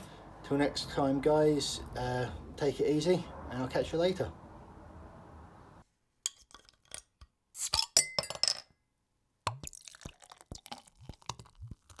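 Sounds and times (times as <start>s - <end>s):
glass clinking: 7.8s - 8.8s.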